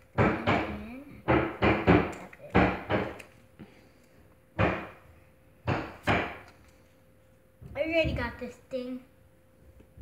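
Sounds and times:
cards slapping and flicking: 2.1 - 3.4.

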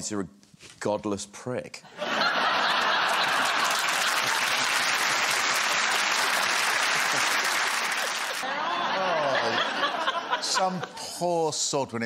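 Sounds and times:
studio audience applauding: 2.2 - 10.1.

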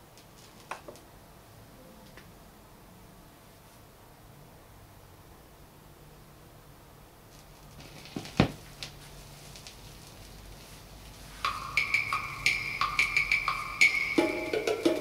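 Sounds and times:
vinyl groove noise: 7.5 - 15.0
percussive music over speakers: 11.4 - 15.0.

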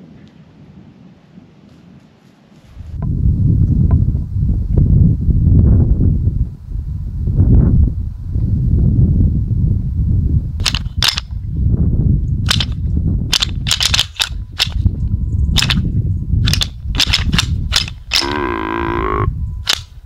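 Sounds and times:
low rumble: 14.4 - 19.7.

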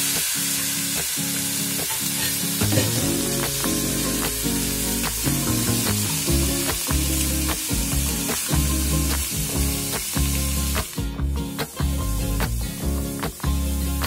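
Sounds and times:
background music with beat: 0.0 - 14.0
food sizzling in hot oil: 0.0 - 14.0.

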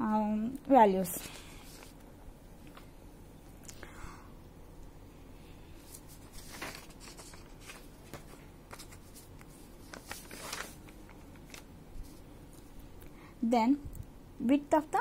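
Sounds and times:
paper pages rustling: 1.1 - 2.0, 5.8 - 12.7.

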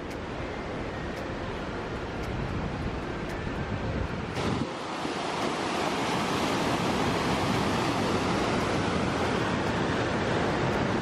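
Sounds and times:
whitewater rushing over boulders: 4.4 - 11.0.

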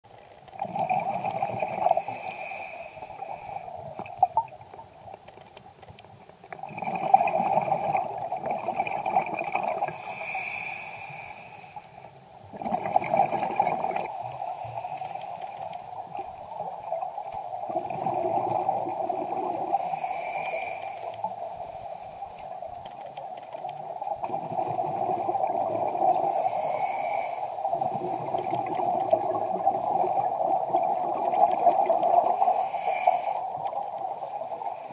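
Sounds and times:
underwater hum: 0.1 - 34.9
exhaled bubbles rushing: 0.5 - 2.2, 6.6 - 10.0, 12.5 - 14.4, 15.9 - 19.8, 23.7 - 26.4, 27.6 - 32.5
regulator inhalation hiss: 1.9 - 3.9, 9.8 - 12.1, 19.7 - 22.4, 26.2 - 27.8, 32.2 - 33.6.

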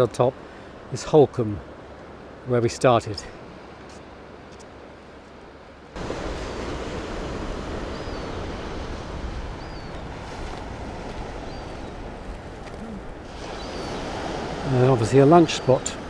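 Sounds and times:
surf washing: 5.9 - 16.0
wind buffeting microphone: 6.0 - 16.0.

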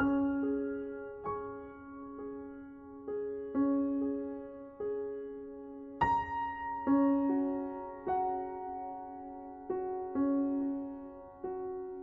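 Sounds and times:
slow piano music: 0.0 - 12.0.

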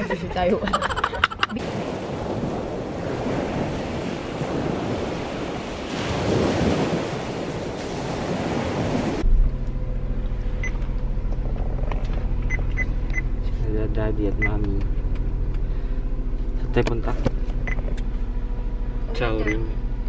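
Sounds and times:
wind: 0.0 - 20.0
surf washing onto beach: 1.6 - 9.2.

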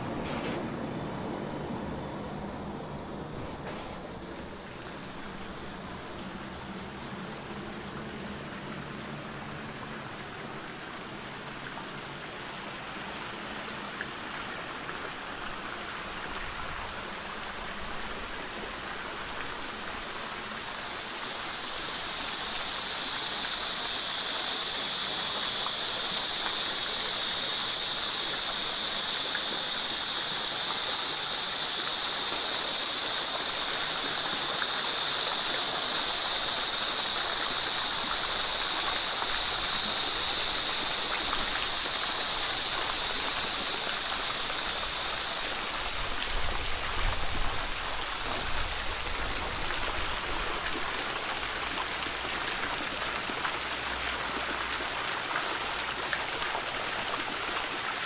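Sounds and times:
fountain splashing into pond: 1.3 - 58.0.

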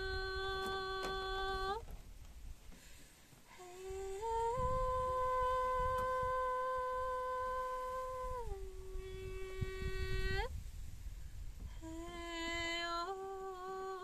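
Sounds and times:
woman singing held notes: 0.0 - 1.8, 3.5 - 10.5
wind rumble on microphone: 0.0 - 2.9, 3.5 - 14.0.

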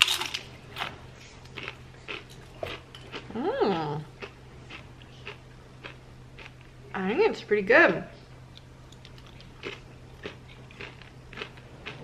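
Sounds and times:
person crunching a chip: 1.4 - 2.3, 8.6 - 12.0
person humming mmm: 3.3 - 4.1.

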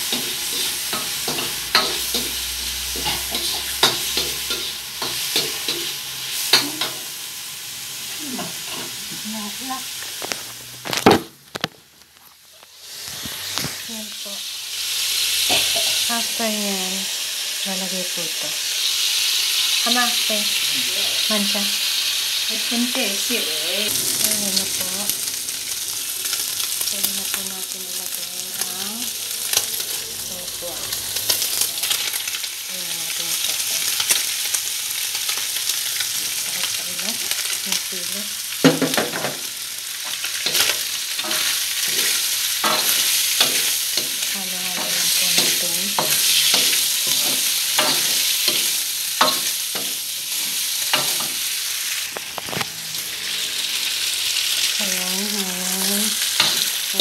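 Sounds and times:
spatula scraping and knocking wok: 0.0 - 7.1, 15.4 - 16.1, 38.6 - 54.6, 56.0 - 57.0
food sizzling in a wok: 0.0 - 57.0.

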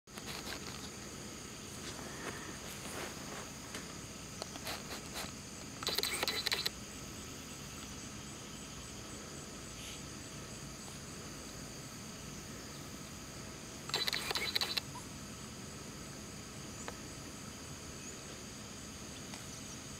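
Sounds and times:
scratchy rustling: 0.1 - 1.0
insects chirping: 0.1 - 19.9.

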